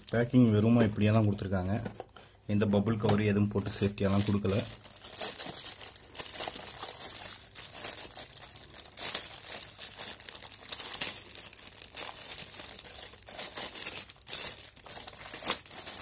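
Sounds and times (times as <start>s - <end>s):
plastic wrap crinkling: 0.0s - 1.9s, 3.5s - 16.0s.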